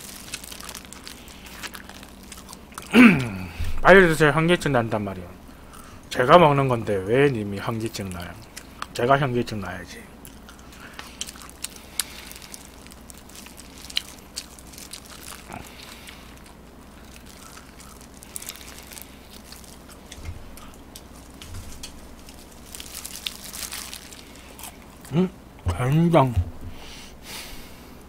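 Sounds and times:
crunching fried chicken: 0.0 - 3.6, 7.1 - 25.2
person chewing: 0.0 - 3.6, 8.2 - 9.0, 10.2 - 25.7.

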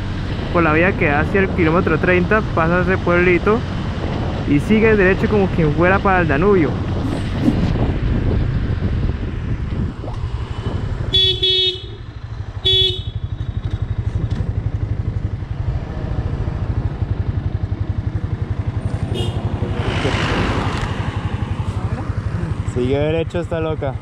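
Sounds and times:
motorcycle engine running: 5.5 - 24.0
horn honking: 11.1 - 13.7, 19.1 - 19.6.

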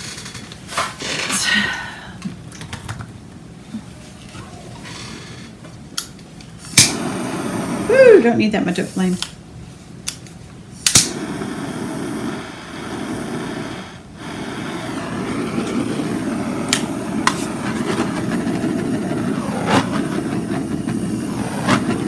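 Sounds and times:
torch flame rushing: 6.6 - 9.0, 10.8 - 22.0.

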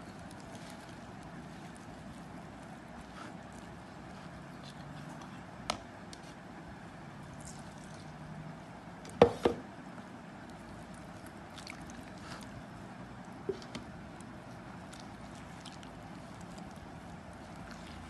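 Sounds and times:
hand working dough: 0.0 - 18.0
juice pouring through strainer: 10.5 - 18.0.

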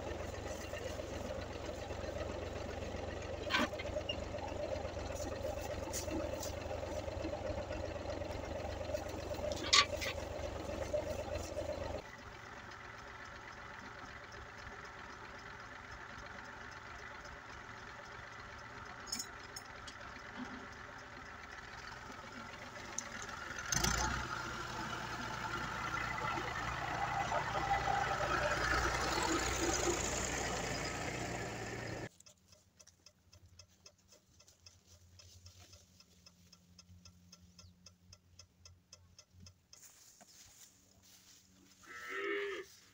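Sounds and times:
tractor engine running: 0.0 - 42.9
faint regular ticking: 10.2 - 23.8, 32.1 - 40.3.

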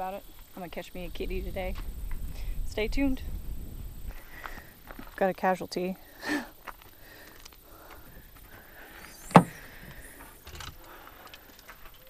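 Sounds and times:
car rear hatch clunk: 9.2 - 9.6
light knocks in cargo area: 9.3 - 9.6.

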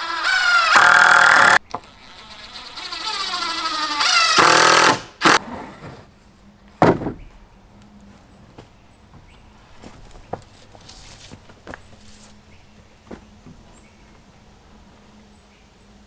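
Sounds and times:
power drill driving screws: 0.0 - 5.4.

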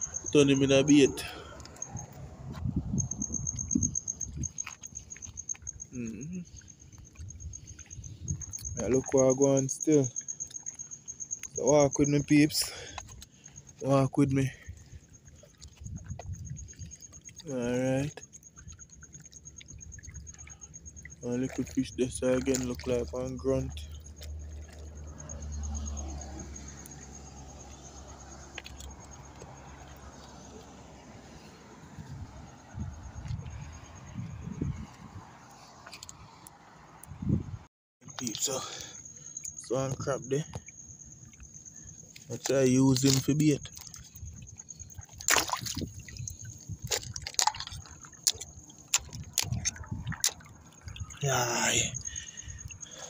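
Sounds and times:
high pulsing insect trill: 0.0 - 53.0
low rumble on microphone: 1.2 - 4.6, 31.9 - 35.4
small splashes and drips: 3.5 - 34.2, 38.0 - 53.0
water lapping among rocks: 14.6 - 26.2, 41.0 - 53.0.

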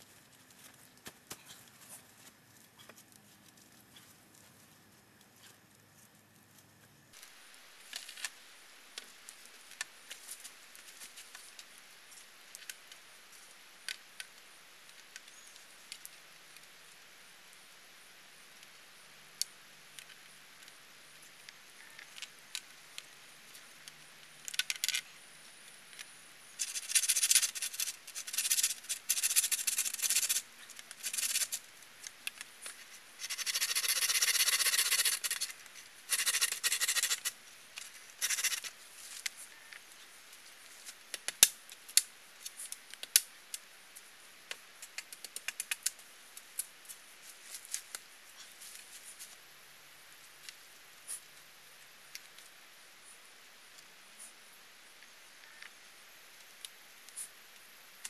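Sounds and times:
rasping scraping on bamboo: 26.6 - 30.4, 31.0 - 31.6, 33.2 - 35.5, 36.1 - 37.3, 38.2 - 38.7.

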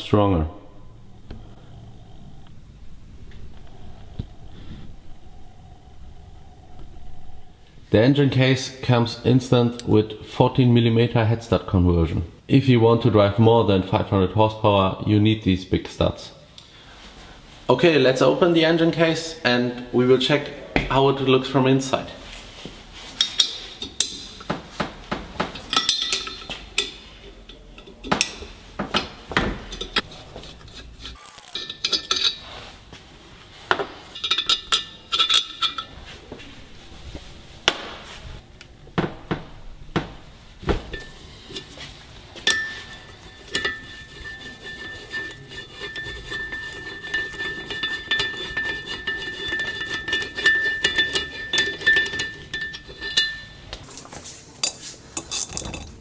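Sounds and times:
bolts and tools clinking on metal: 25.6 - 32.4, 34.1 - 35.9, 42.4 - 56.0.

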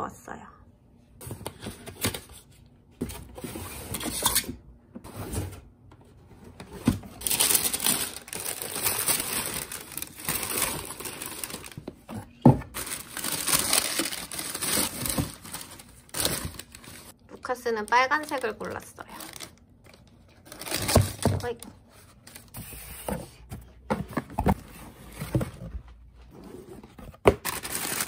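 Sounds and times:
tissue paper rustling: 7.2 - 11.8, 12.7 - 17.2.

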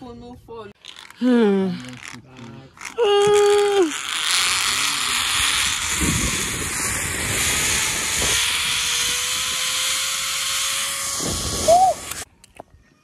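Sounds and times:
zip-line trolley on steel cable: 0.8 - 12.3
wind rushing over microphone: 4.6 - 12.2.

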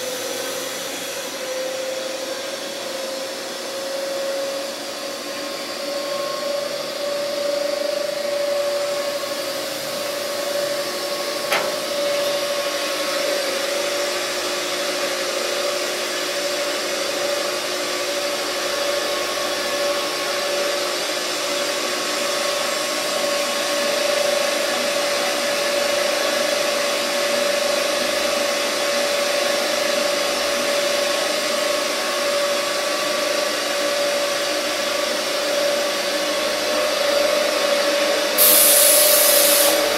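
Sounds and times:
blender drive whirring: 5.3 - 39.9
click: 11.5 - 11.8.

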